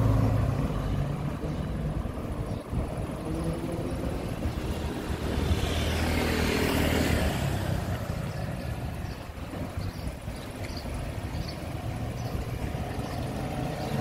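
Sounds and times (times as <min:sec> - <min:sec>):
steady traffic hum: 0:00.0 - 0:14.0
vehicle passing close by: 0:02.8 - 0:09.2.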